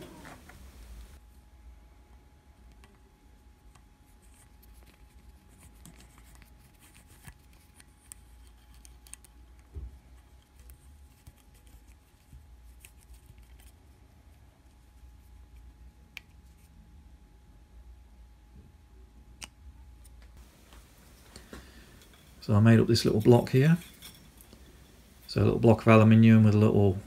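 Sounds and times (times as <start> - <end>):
hex key clicks and scratches: 3.6 - 13.9.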